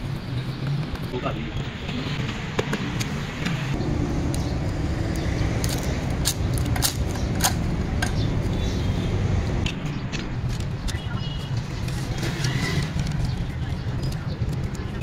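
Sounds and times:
low rumble of distant traffic: 0.0s - 15.0s
sharp clacks of bamboo reeds: 5.6s - 8.3s.

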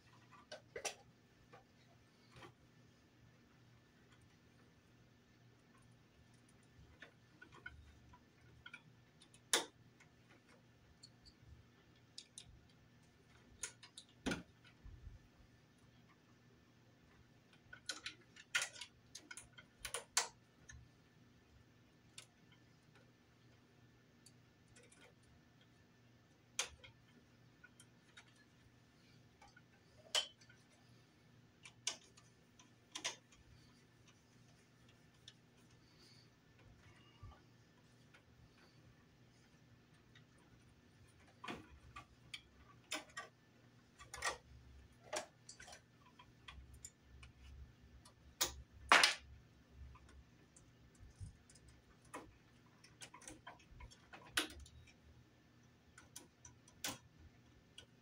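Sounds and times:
faint steady hum: 0.0s - 58.0s
tools clicking and tapping: 0.1s - 2.6s, 5.7s - 15.2s, 17.2s - 20.9s, 22.0s - 58.0s.

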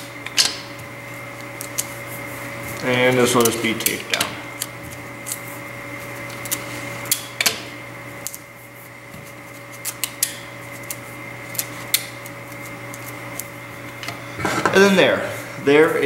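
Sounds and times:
tape clicks and paper rustles: 4.6s - 5.5s, 9.2s - 13.5s.

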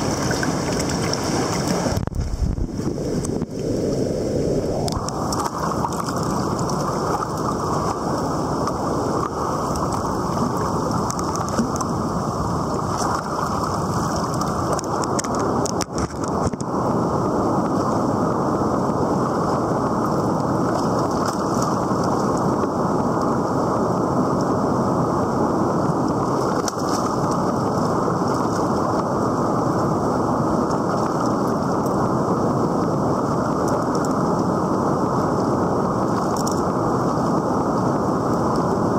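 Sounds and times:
river rapids rushing: 0.0s - 2.0s.

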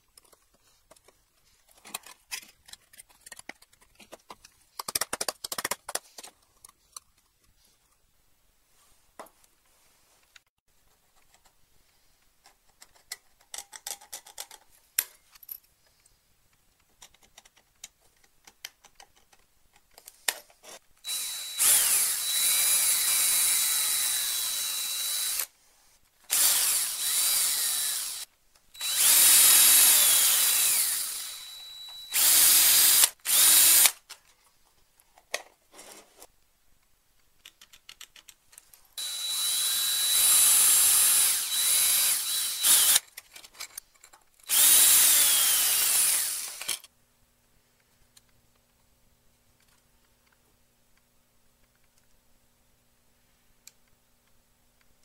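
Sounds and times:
plastic parts rattling: 0.1s - 7.4s, 12.4s - 15.4s, 43.0s - 44.5s
small electric drill whining: 21.0s - 25.5s, 26.3s - 34.0s, 39.0s - 43.0s, 44.5s - 46.9s.

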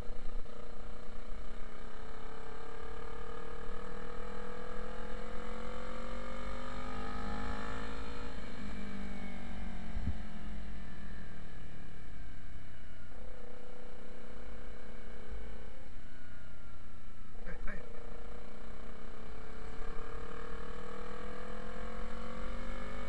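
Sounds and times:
motorcycle engine accelerating: 0.0s - 23.0s
wind rumble on microphone: 9.9s - 10.2s.

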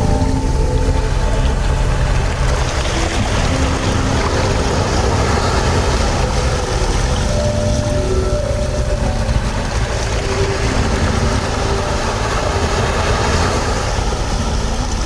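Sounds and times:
rushing water underwater: 0.0s - 15.0s.

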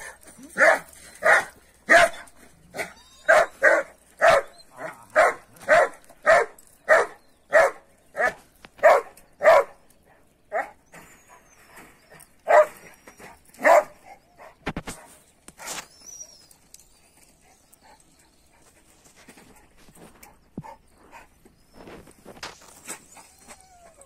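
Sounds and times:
dog barking: 0.6s - 2.2s, 2.8s - 9.8s, 12.5s - 12.8s, 13.6s - 14.6s.

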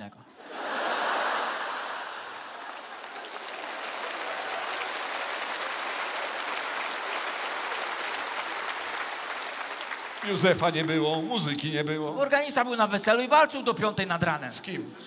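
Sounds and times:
audience laughing: 0.4s - 4.8s
audience applauding: 0.4s - 11.7s.

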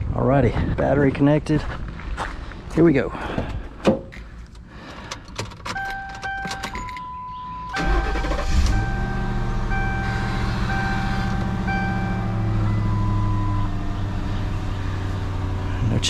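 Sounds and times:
car engine starting and idling: 4.2s - 16.0s
dashboard warning chimes: 5.6s - 14.2s.

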